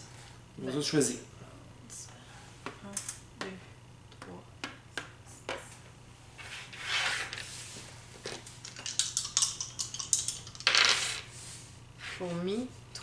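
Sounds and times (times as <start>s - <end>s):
sliding rubbing sound: 6.4s - 8.0s, 10.7s - 12.4s
game pieces clicking on board: 8.6s - 11.0s
dice rattling: 8.6s - 11.2s.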